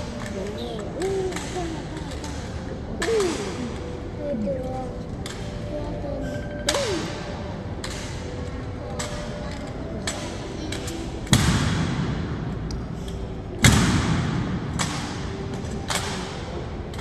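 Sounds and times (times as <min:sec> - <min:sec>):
loud sharp thuds ringing in hall: 0:11.3 - 0:12.4, 0:13.6 - 0:16.5.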